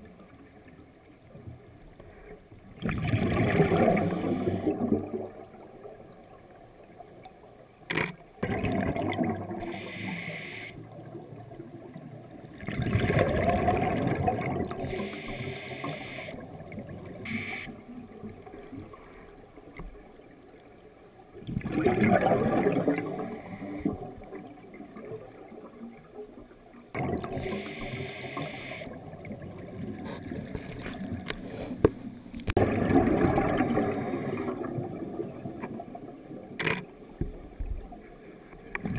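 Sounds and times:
regulator hissing inhalations: 9.7s - 10.8s, 14.8s - 16.4s, 27.4s - 28.9s
bubbling exhalations: 21.5s - 23.4s.

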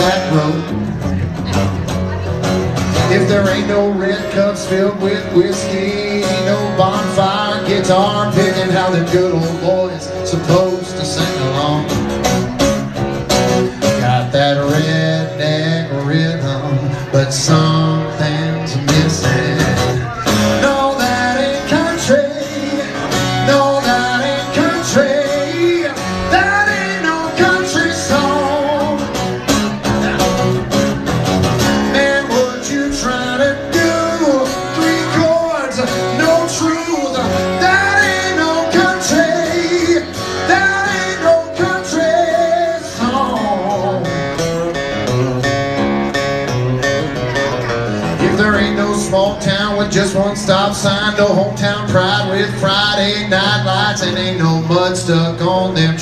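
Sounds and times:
man singing: 0.0s - 1.5s, 2.8s - 12.3s, 13.8s - 29.8s, 31.5s - 45.6s, 47.6s - 56.0s
strummed acoustic guitar: 0.0s - 56.0s.

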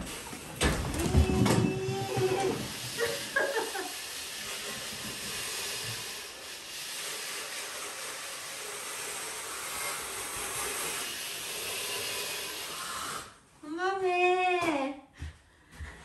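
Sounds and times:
steady hiss: 2.6s - 13.4s.

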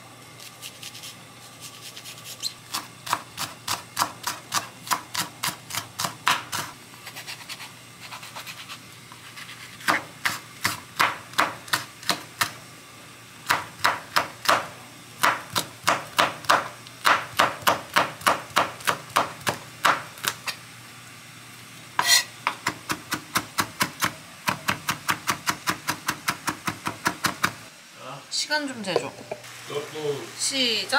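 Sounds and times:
knife chopping on cutting board: 2.7s - 8.7s, 9.3s - 12.6s, 13.5s - 20.6s.

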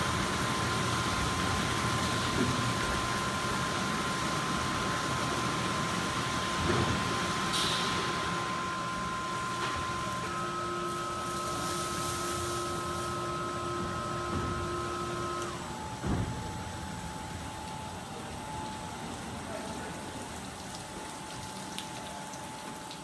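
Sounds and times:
motor whine: 6.2s - 18.6s.

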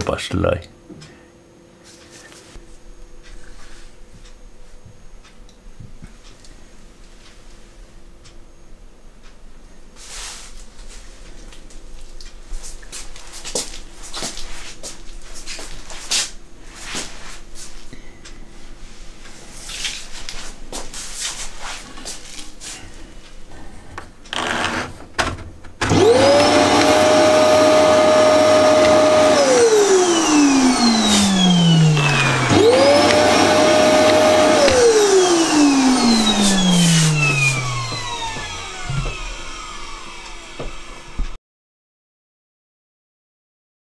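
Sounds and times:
vacuum motor whining: 24.3s - 41.4s.

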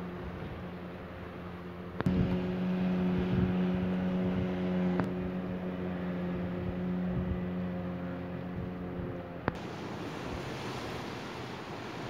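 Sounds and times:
motor hum: 0.0s - 10.7s.

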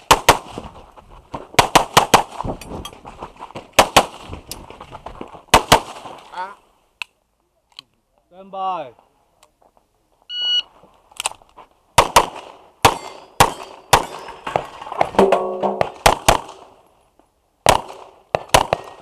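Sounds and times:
electronic timer beep: 10.3s - 10.7s
pistol shots: 12.0s - 14.4s, 17.7s - 19.0s.

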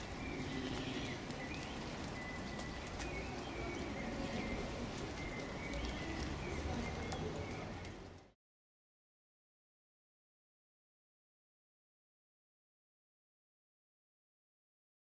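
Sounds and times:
hooves clicking on concrete steps: 0.0s - 8.3s.

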